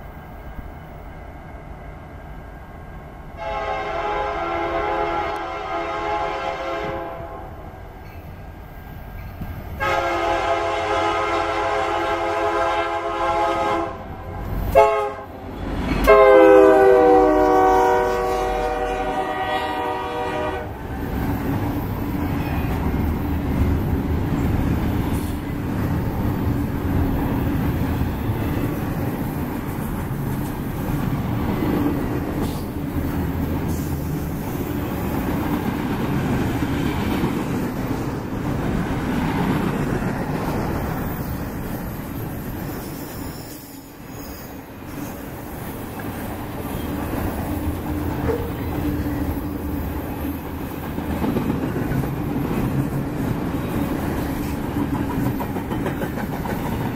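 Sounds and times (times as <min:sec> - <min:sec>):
train cars rumbling and clattering: 0:00.0 - 0:56.9
locomotive horn blasts: 0:03.4 - 0:07.6, 0:09.8 - 0:15.4, 0:16.0 - 0:20.8.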